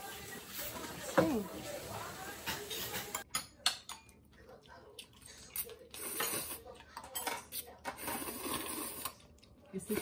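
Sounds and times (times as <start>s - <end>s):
person slurping noodles: 8.0s - 9.2s.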